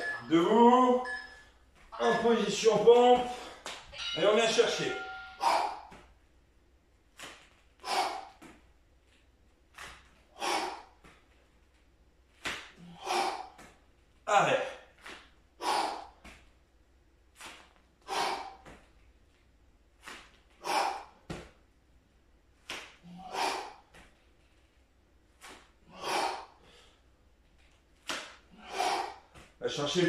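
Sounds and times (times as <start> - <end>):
man breathing hard: 5.2 - 6.1, 7.8 - 8.6, 10.2 - 11.1, 12.7 - 13.8, 15.6 - 16.3, 18.0 - 18.8, 20.5 - 21.3, 23.0 - 24.0, 25.8 - 27.2, 28.3 - 29.6.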